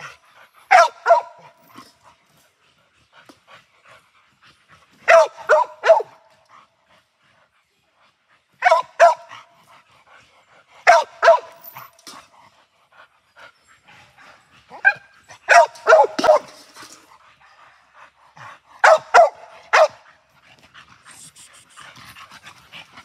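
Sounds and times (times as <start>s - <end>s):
dog barking: 0.7s - 1.5s, 5.1s - 6.2s, 8.6s - 9.4s, 10.9s - 11.6s, 14.8s - 16.6s, 18.8s - 20.0s.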